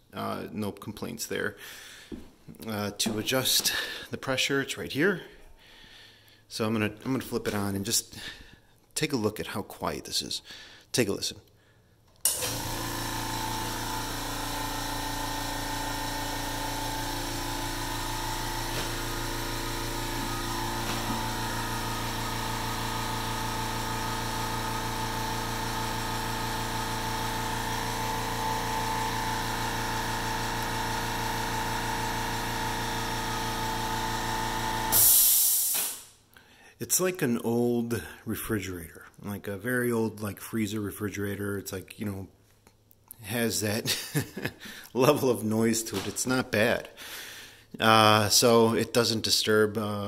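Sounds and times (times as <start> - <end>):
air compressor humming: 12.2 - 36.1
burst of air hiss: 34.9 - 36.2.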